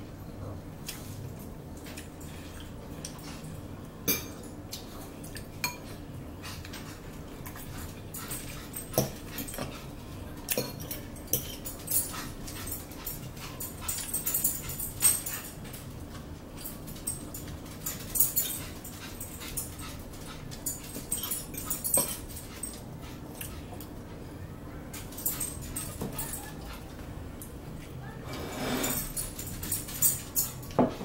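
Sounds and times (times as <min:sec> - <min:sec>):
forks scraping on plates: 0:28.3 - 0:31.0.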